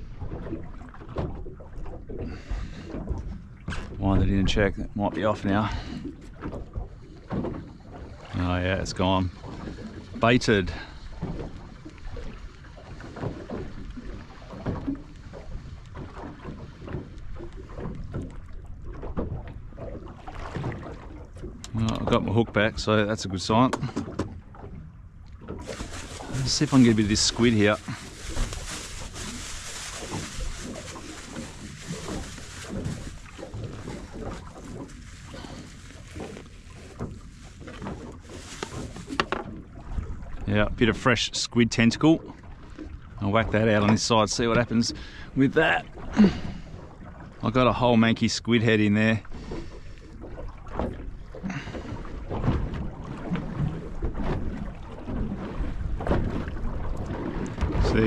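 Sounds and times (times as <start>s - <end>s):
water slapping boat hull: 0.0s - 58.0s
knocks and rustles of bait handling: 25.4s - 39.6s.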